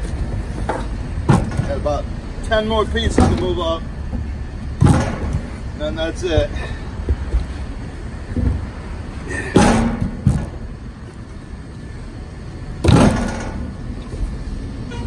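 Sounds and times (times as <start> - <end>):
logs knocking and scraping: 0.0 - 2.0, 3.0 - 11.2.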